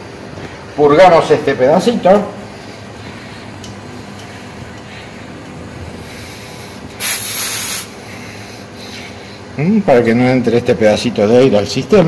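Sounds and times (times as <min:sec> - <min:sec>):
gas hissing from hose fitting: 0:06.6 - 0:08.0.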